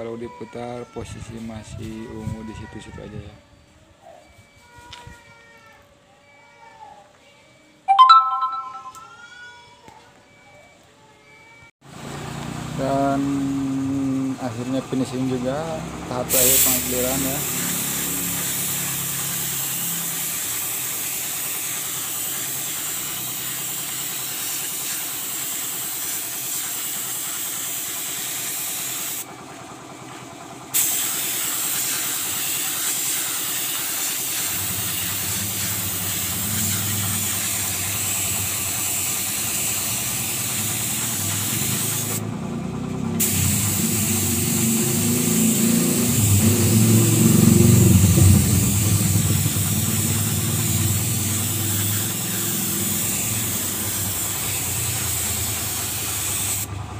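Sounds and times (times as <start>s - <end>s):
paint spray gun hissing: 16.3s - 29.3s, 30.8s - 42.2s, 43.2s - 47.4s, 48.4s - 56.7s
low motor rumble: 42.2s - 56.9s.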